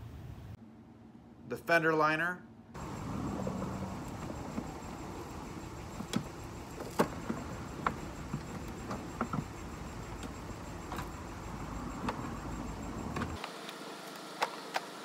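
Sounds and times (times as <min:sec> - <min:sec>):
low background rumble: 0:02.4 - 0:13.4.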